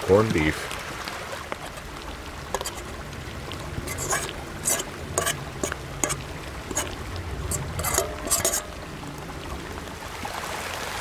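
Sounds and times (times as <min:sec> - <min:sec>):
metal spoon scraping metal plate: 0:01.5 - 0:01.8, 0:02.5 - 0:03.0, 0:03.8 - 0:08.8.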